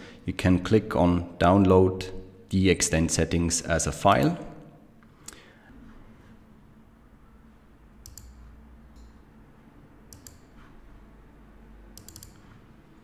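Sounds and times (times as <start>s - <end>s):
low steady hum: 0.0s - 13.0s
computer mouse clicks: 8.0s - 9.2s, 10.1s - 10.7s, 11.9s - 12.6s.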